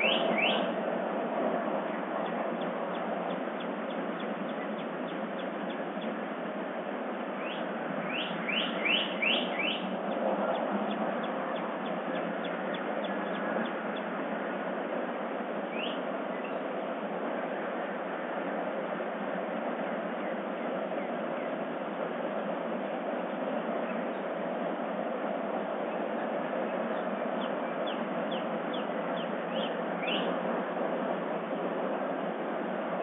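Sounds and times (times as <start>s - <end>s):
birds chirping: 0.0s - 0.7s, 1.8s - 6.3s, 7.4s - 14.2s, 15.7s - 17.0s, 25.8s - 30.4s.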